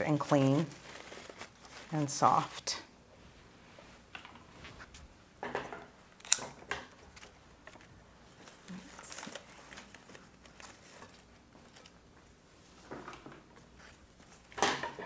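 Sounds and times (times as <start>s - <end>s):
leaves and stems rustling: 0.0s - 2.6s.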